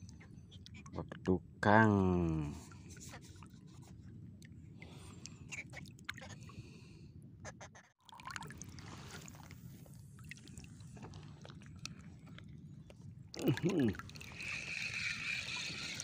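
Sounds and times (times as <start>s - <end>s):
sea water sloshing: 8.0s - 16.0s.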